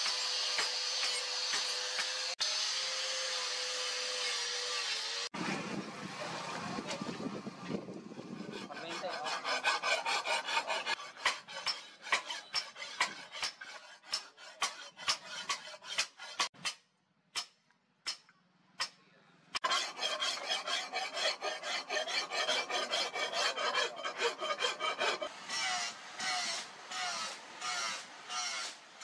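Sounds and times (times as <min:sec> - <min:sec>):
hand file rasping on steel: 0:08.2 - 0:16.6, 0:19.6 - 0:28.8.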